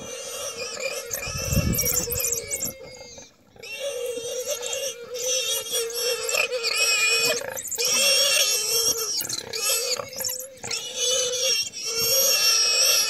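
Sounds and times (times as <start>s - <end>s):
warthog squealing: 0.0s - 13.0s.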